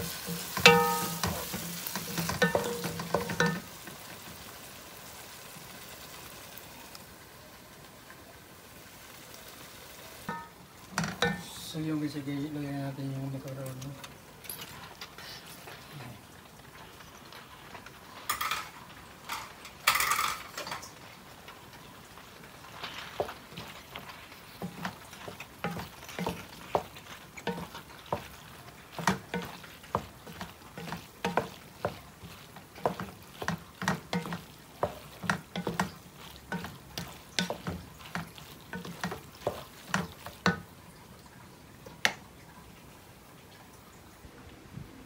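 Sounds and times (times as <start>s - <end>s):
spatula scraping and knocking pot: 0.0s - 3.7s, 22.8s - 40.7s.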